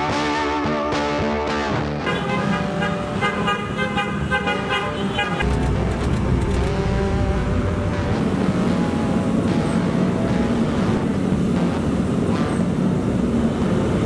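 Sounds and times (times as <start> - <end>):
low rumble of engines and traffic: 0.0 - 14.0
scooter horns honking: 2.0 - 11.0.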